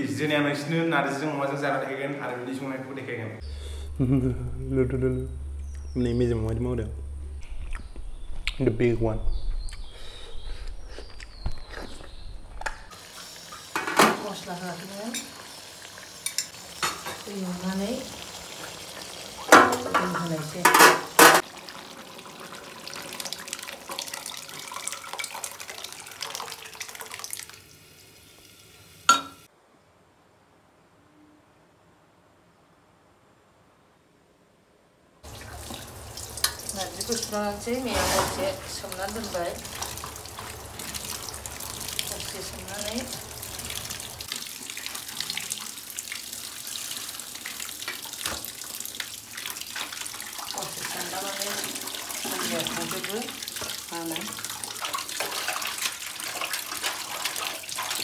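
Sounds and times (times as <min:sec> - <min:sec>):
tap water running into bowl: 0:18.0 - 0:27.8, 0:35.2 - 0:58.0
liquid splashing into a pot: 0:18.3 - 0:27.7, 0:35.2 - 0:58.0.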